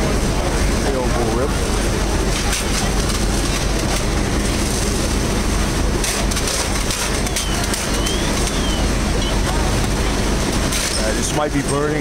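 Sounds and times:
fire engines humming: 0.0s - 12.0s
hose streams spraying water: 0.0s - 12.0s.

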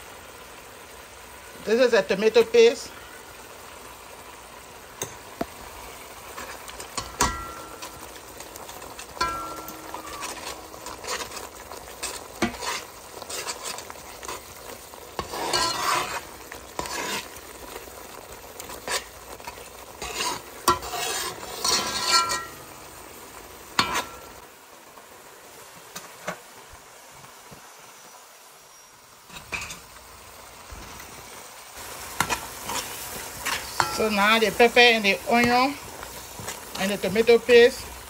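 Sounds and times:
food sizzling: 0.0s - 38.0s
metal spoon scraping pot: 6.3s - 14.5s, 15.2s - 17.4s, 18.6s - 22.8s, 23.8s - 24.3s
spoon knocking against pot: 7.0s - 7.9s, 9.2s - 10.2s.

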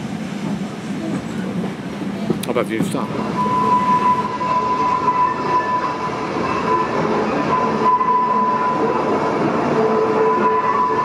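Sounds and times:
train wheels rumbling on rails: 0.0s - 11.0s
low wheel squeal: 3.1s - 11.0s.

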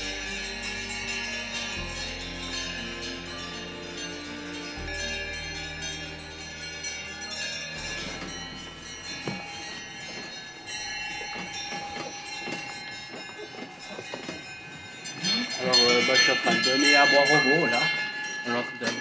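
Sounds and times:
background music: 0.0s - 13.5s
cowbells clanking: 0.0s - 19.0s.

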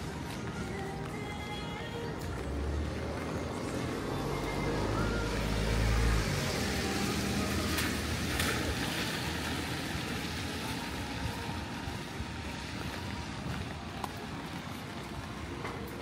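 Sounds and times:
traffic noise: 0.0s - 16.0s.

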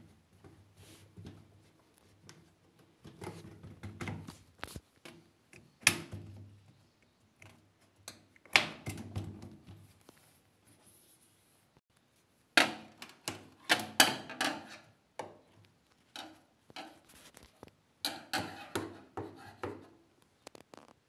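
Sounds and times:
knocks and scrapes of machine parts: 0.3s - 5.2s, 12.6s - 20.0s.

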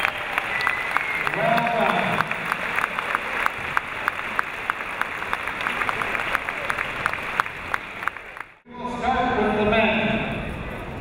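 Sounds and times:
large crowd applauding: 0.0s - 8.6s.

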